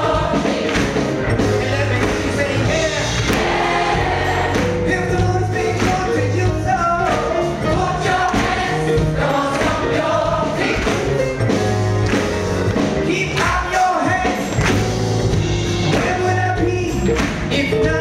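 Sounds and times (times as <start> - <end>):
gospel choir singing: 0.0 - 11.5
live band playing: 0.0 - 18.0.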